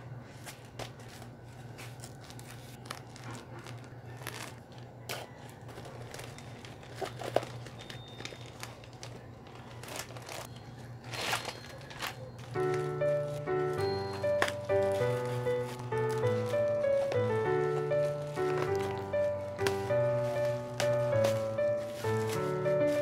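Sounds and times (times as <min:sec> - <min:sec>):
plastic mailer crinkling: 0:00.5 - 0:23.0
scissors cutting plastic: 0:00.8 - 0:23.0
music: 0:10.4 - 0:23.0.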